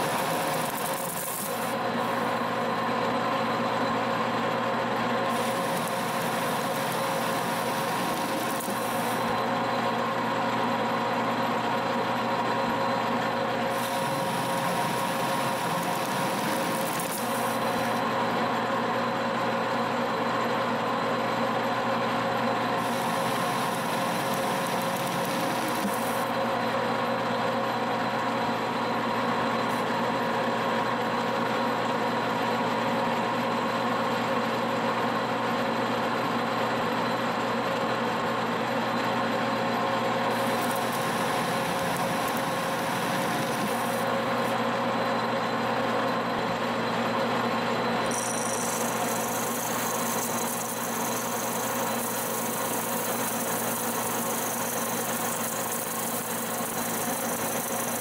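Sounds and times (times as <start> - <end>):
lathe gear whine: 0.0 - 33.7, 35.5 - 58.0
lathe cutting hiss: 5.3 - 9.4, 13.7 - 18.0, 22.8 - 26.3, 40.3 - 44.6, 48.1 - 58.0.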